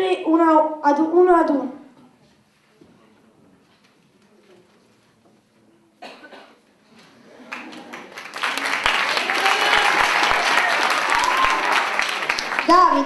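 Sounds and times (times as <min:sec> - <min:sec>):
audience applause: 0:07.4 - 0:13.0.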